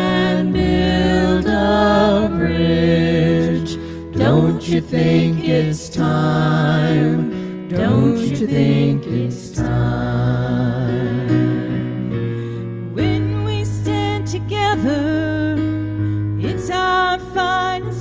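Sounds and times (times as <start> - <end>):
vocal group singing harmony: 0.0 - 15.1
piano accompaniment: 0.0 - 18.0.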